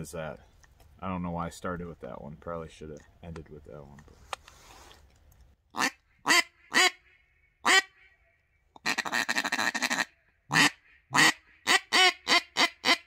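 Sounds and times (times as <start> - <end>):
duck call quacks: 5.8 - 8.1, 8.8 - 13.0.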